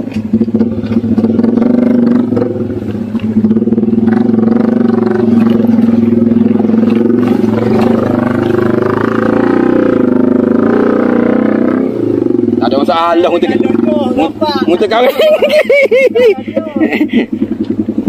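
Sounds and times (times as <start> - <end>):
motorcycle engine under load: 0.0 - 18.0.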